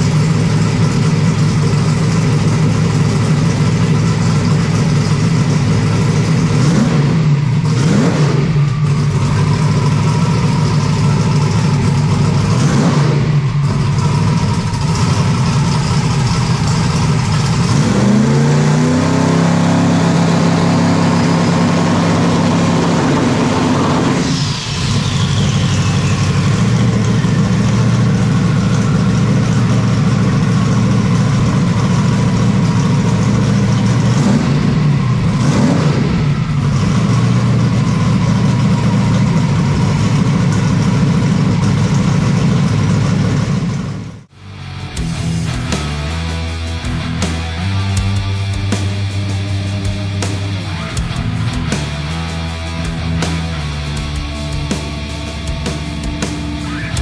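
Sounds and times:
race car engine revving: 0:00.0 - 0:57.0
high falling whistle: 0:24.1 - 0:27.0.

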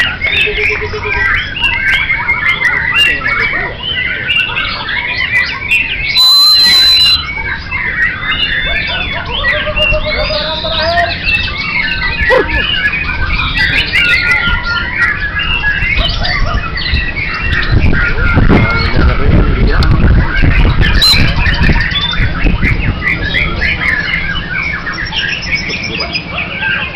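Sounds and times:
caged songbirds singing: 0:00.0 - 0:26.9
loud steady high tone: 0:06.1 - 0:07.6.

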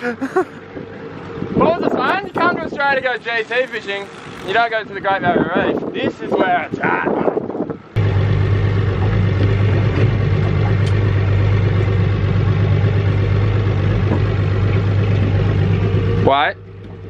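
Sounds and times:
boat engine idling: 0:07.9 - 0:17.0.

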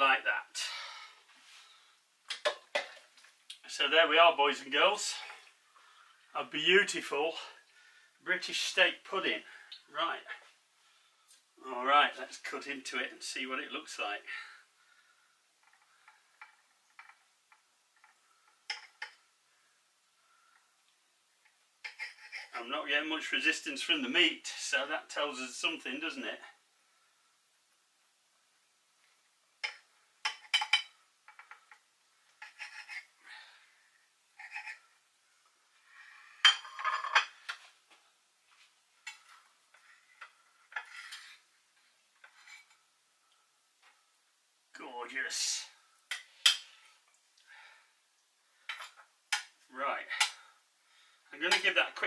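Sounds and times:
knife scraping through pastry: 0:21.9 - 0:22.6, 0:32.4 - 0:33.1, 0:34.4 - 0:34.8, 0:40.8 - 0:41.4
crockery clatter: 0:36.4 - 0:37.5.

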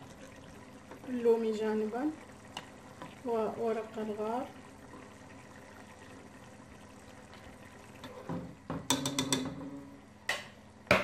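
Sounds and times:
broth bubbling in a pot: 0:00.0 - 0:10.8
spatula knocking against pot: 0:08.3 - 0:09.5.

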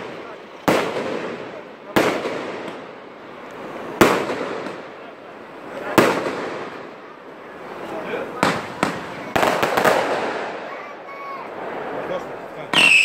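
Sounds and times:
fireworks bangs: 0:00.0 - 0:13.0.

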